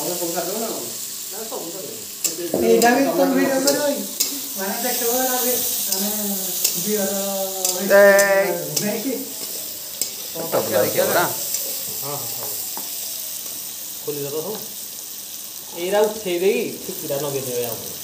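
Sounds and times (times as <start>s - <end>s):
person talking: 0.0s - 9.4s
oil sizzling: 0.0s - 18.0s.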